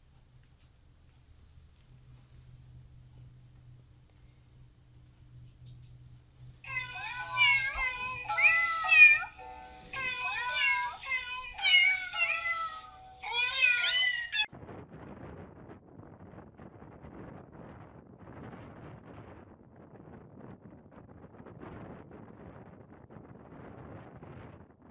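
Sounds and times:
music: 6.6s - 14.3s
cat meowing: 6.7s - 14.5s.

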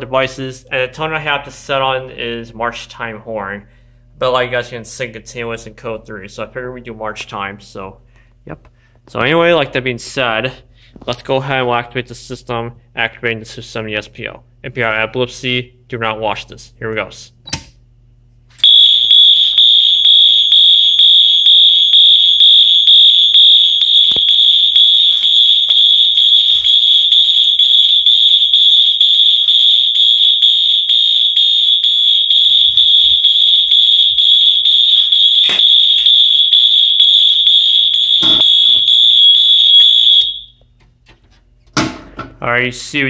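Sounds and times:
high-pitched fire alarm horn: 18.6s - 40.6s.

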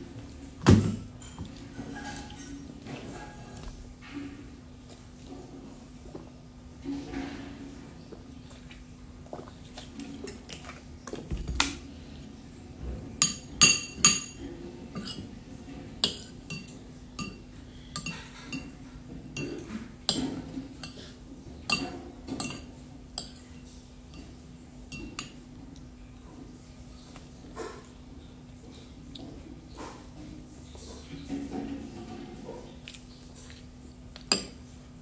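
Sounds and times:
cutlery clinking on plate: 13.2s - 15.3s.

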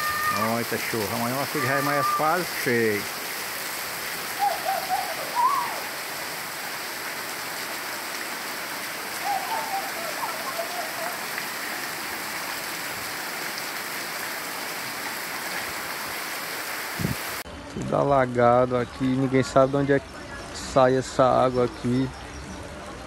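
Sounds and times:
heavy rain pouring: 0.0s - 17.5s
short wavering calls: 4.3s - 6.1s, 9.1s - 11.4s.

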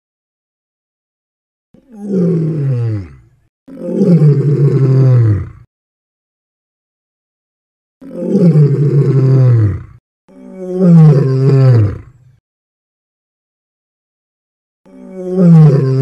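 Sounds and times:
lion roaring: 1.8s - 5.7s, 8.0s - 12.2s, 14.9s - 16.0s.

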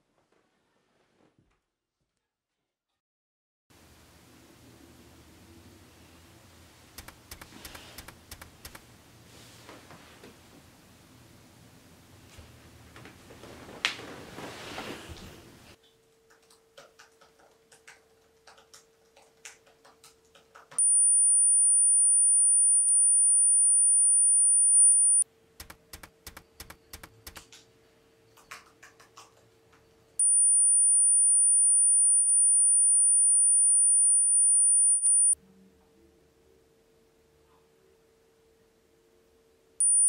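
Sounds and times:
typing on laptop keyboard: 7.0s - 8.8s, 25.6s - 27.6s
high-pitched electronic tone: 20.8s - 25.2s, 30.2s - 35.4s.

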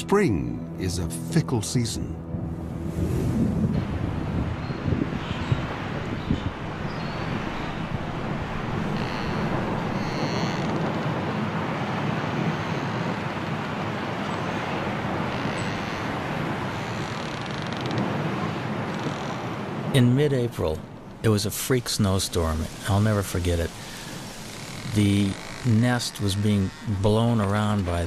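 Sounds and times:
strong wind rushing: 2.2s - 15.3s.

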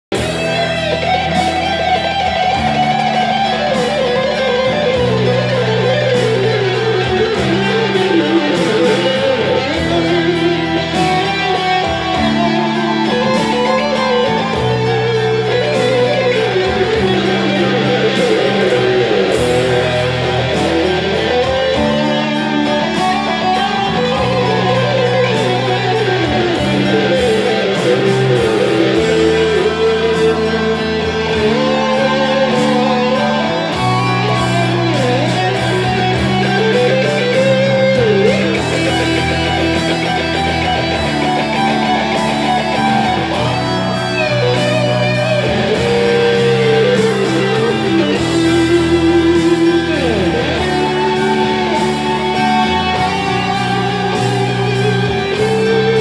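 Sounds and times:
electric guitar lead solo: 0.0s - 56.0s
low chord accompaniment: 0.1s - 56.0s.

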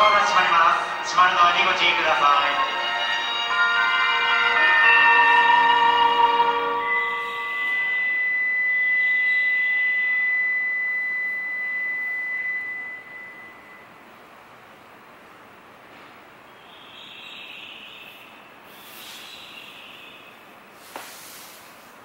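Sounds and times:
melody: 0.0s - 13.8s
high-pitched electronic tone: 3.0s - 14.0s
soft hiss: 20.7s - 22.0s.

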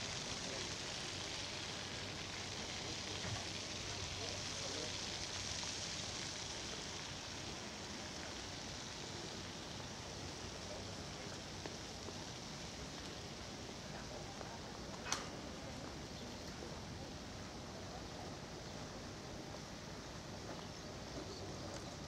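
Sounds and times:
outdoor background hiss: 0.0s - 22.0s
sharp click: 15.0s - 15.3s.

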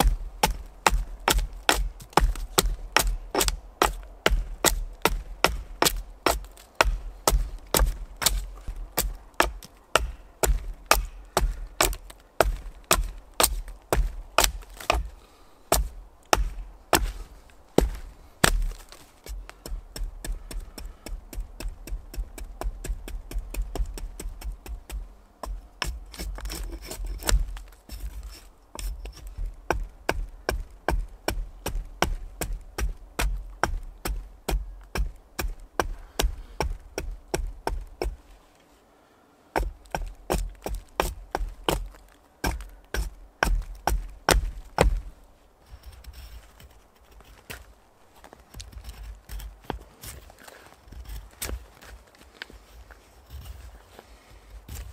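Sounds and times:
hatchet chopping wood: 0.0s - 17.2s, 17.8s - 38.2s, 39.6s - 45.1s.

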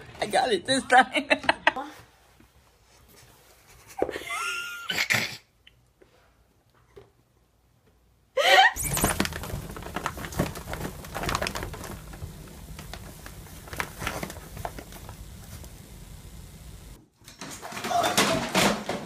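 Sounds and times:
low room hum: 5.6s - 17.2s
fabric rustling: 8.8s - 17.0s.

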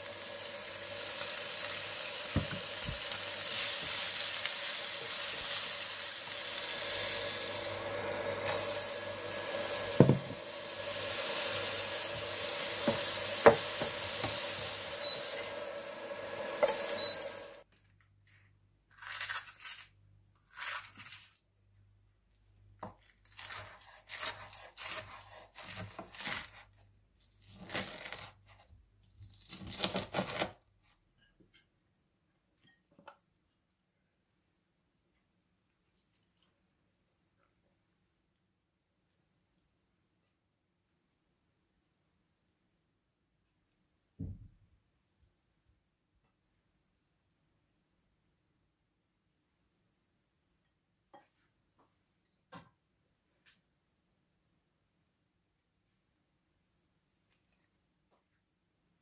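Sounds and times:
vegetables sizzling in a frying pan: 0.0s - 17.6s
spatula scraping and knocking pan: 9.8s - 11.1s, 11.9s - 15.2s.

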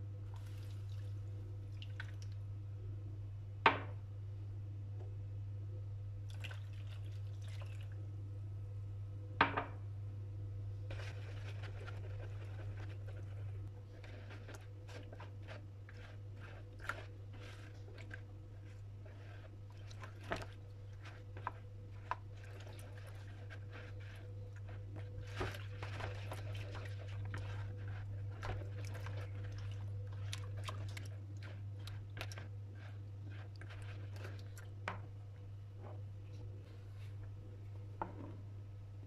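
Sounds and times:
steady low hum: 0.0s - 39.0s
spatula stirring water: 10.9s - 35.2s.

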